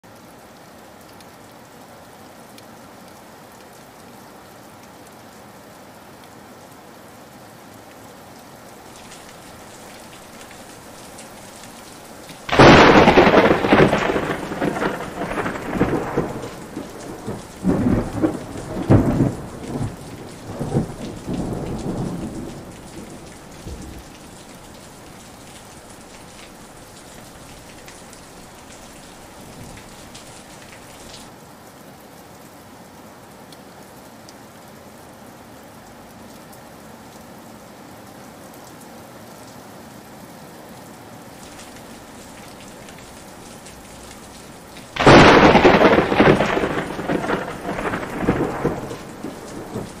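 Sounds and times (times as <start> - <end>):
steady rain: 0.0 - 50.0
thunder rumbling: 9.0 - 31.1, 42.4 - 50.0.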